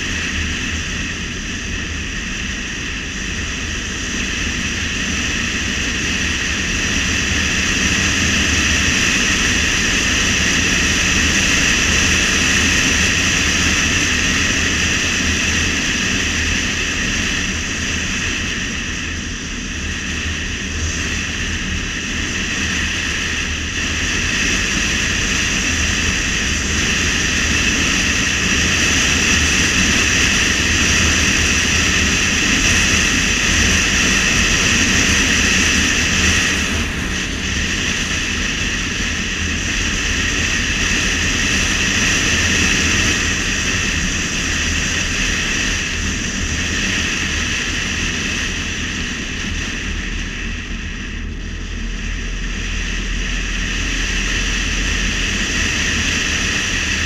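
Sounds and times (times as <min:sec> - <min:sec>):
car engine rumble: 0:00.0 - 0:57.0
road tyre and wind noise: 0:00.0 - 0:57.0.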